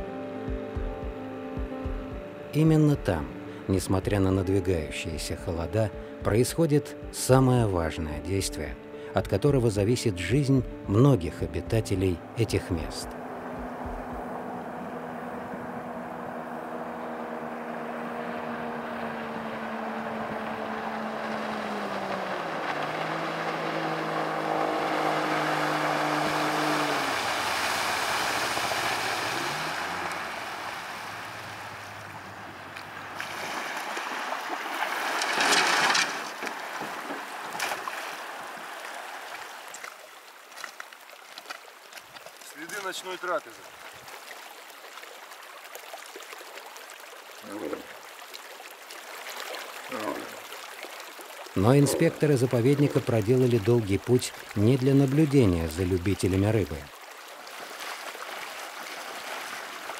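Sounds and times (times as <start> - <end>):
outboard motor running: 0.0 - 6.3, 10.6 - 36.0.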